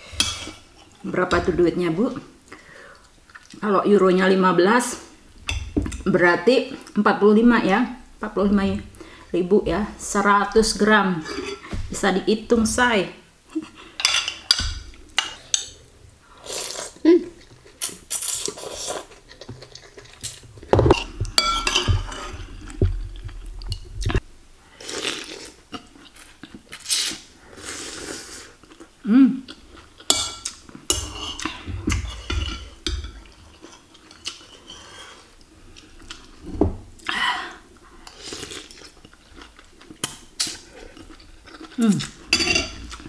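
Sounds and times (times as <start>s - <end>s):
chewing: 2.9s - 3.6s, 16.5s - 21.2s, 28.6s - 32.2s, 38.0s - 43.0s
spoon clinking on ceramic bowl: 21.4s - 22.0s.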